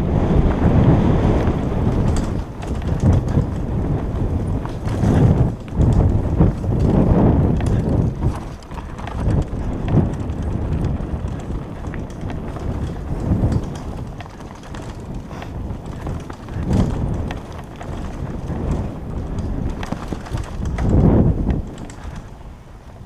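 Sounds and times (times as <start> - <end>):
bike tyres rumbling over dirt: 0.0 - 23.0
bike knocks and rattles: 0.4 - 23.0.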